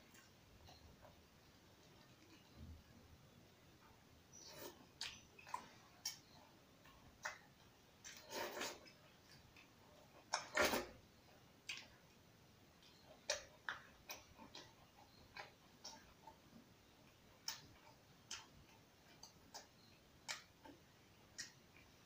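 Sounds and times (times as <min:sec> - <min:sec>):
eating clicks and smacks: 0:04.5 - 0:10.9, 0:11.6 - 0:12.2, 0:12.8 - 0:22.0.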